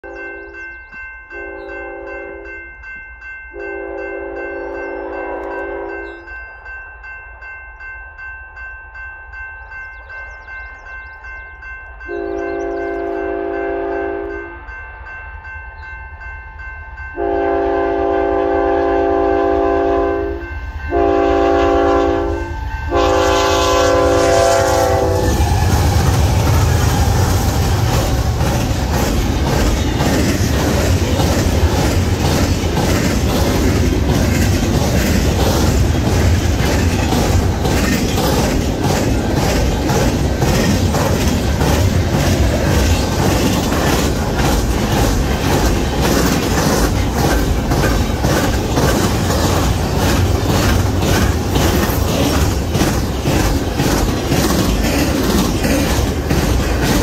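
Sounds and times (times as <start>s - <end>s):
railroad crossing bell ringing: 0.0s - 57.0s
locomotive air horn blasts: 3.6s - 6.0s, 12.1s - 14.5s, 17.2s - 26.3s
locomotive engine noise: 20.9s - 57.0s
wheels clattering on rail: 22.9s - 57.0s.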